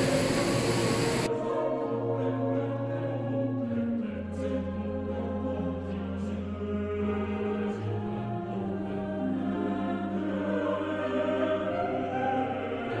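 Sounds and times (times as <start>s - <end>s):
low steady drone: 0.0s - 1.4s
choir-like voices holding notes: 0.0s - 13.0s.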